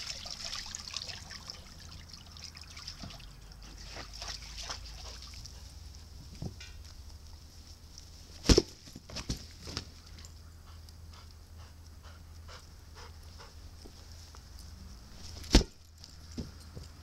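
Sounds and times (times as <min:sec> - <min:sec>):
dog panting: 0:03.6 - 0:05.9, 0:10.2 - 0:13.9.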